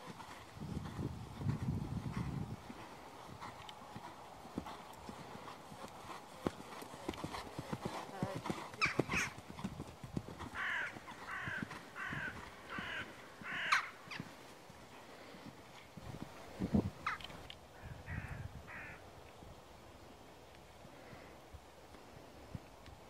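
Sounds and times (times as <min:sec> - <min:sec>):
horse hoofbeats on sand: 0:00.0 - 0:14.6
bird calling: 0:10.5 - 0:14.3.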